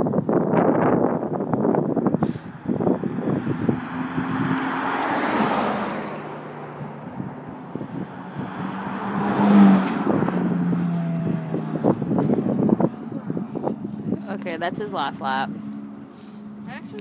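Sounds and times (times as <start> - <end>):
wind buffeting microphone: 0.0 - 17.0
sports car engine passing: 0.8 - 17.0
distant car engine: 1.6 - 17.0.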